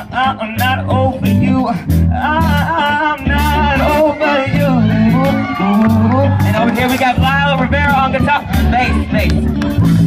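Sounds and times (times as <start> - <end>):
live funk rock band: 0.0 - 10.0
wavering wordless lead melody: 0.0 - 10.0.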